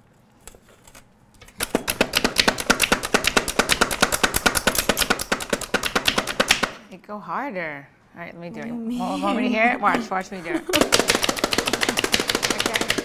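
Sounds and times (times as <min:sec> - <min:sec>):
food chopper clicking and clattering: 0:10.7 - 0:13.0.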